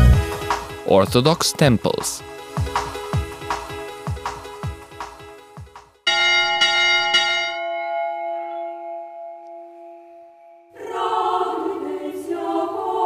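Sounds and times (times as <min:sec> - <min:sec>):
church bell ringing: 0:06.1 - 0:10.8
choir singing: 0:10.7 - 0:13.0.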